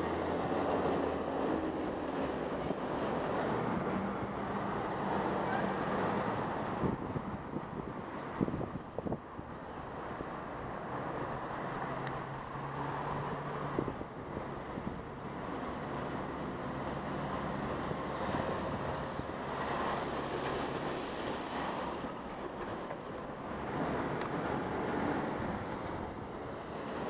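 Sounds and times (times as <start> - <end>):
road noise: 0.0 - 27.0
wind on microphone: 6.7 - 9.5.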